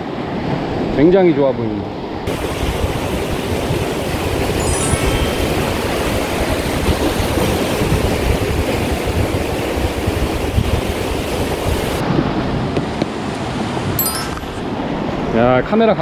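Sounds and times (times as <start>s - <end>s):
wind buffeting microphone: 2.3s - 14.0s.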